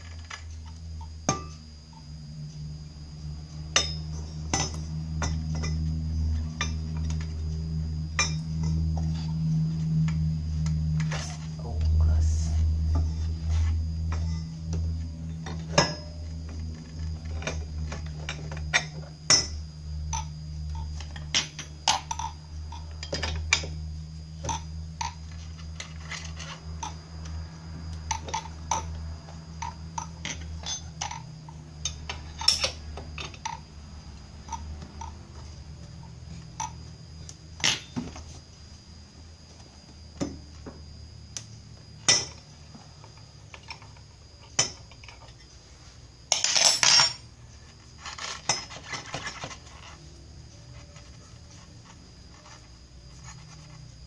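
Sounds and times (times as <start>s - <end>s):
steady low hum: 0.0s - 54.0s
metal parts and tools clinking: 3.7s - 7.4s, 8.1s - 10.2s, 12.9s - 23.8s, 28.1s - 33.7s, 42.0s - 45.6s, 46.3s - 50.0s.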